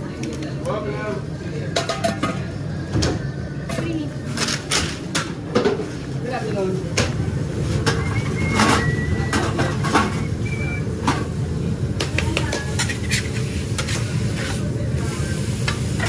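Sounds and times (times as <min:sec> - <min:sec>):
steady low hum: 0:00.0 - 0:12.1
metal spatulas scraping grill: 0:12.7 - 0:14.6.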